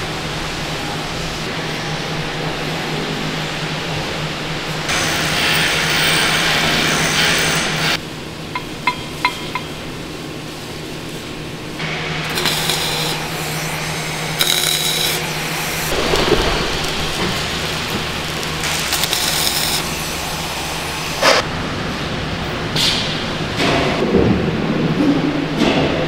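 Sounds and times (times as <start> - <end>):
hammer tapping on steel: 8.6 - 9.8
arc welding crackling hiss: 12.2 - 21.4.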